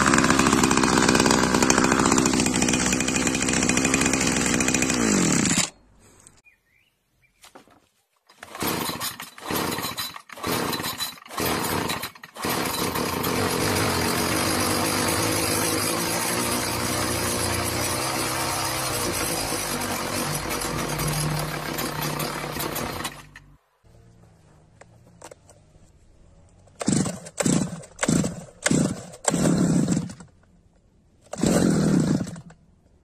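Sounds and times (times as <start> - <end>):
brush cutter engine running: 0.0 - 5.8, 8.3 - 23.5, 26.7 - 30.3, 31.3 - 32.6
engine sputtering on pull start: 8.3 - 14.8, 19.0 - 23.5, 26.8 - 30.4, 31.2 - 32.6.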